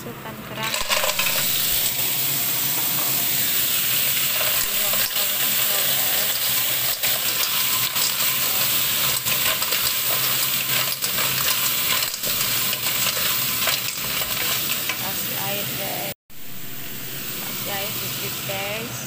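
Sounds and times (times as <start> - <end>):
clams sizzling in hot oil: 0.6 - 18.9
wooden spatula stirring: 7.0 - 15.0.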